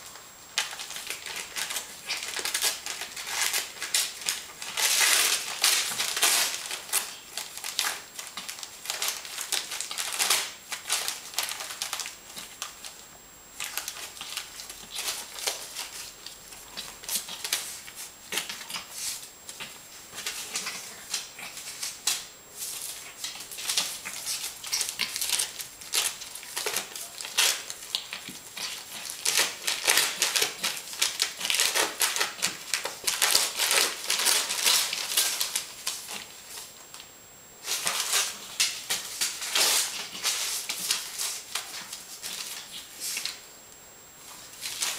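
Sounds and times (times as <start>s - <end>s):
puppy tearing and chewing paper: 0.6s - 13.0s, 13.6s - 36.7s, 37.6s - 43.4s, 44.2s - 44.9s.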